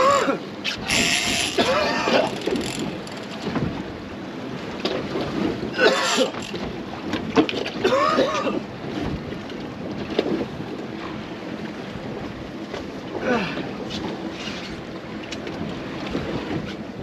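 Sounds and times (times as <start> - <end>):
sea rushing along hull: 0.0 - 17.0
wind buffeting microphone: 0.8 - 5.8.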